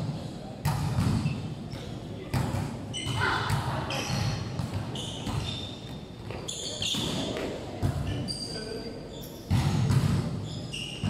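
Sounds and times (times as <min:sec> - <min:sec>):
volleyball hits echoing: 0:00.0 - 0:06.4, 0:09.5 - 0:10.4.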